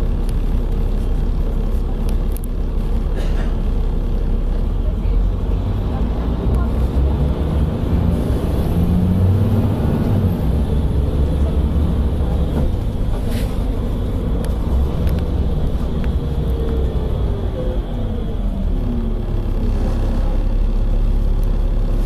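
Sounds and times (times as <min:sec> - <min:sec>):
bus diesel engine drone: 0:00.0 - 0:22.0.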